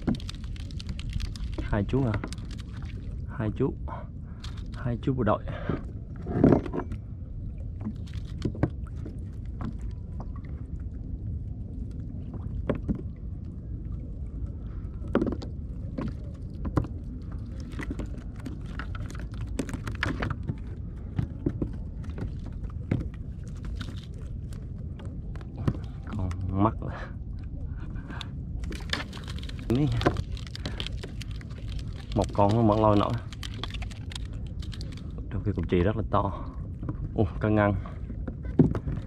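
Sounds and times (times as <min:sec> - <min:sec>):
steady low rumble: 0:00.0 - 0:39.0.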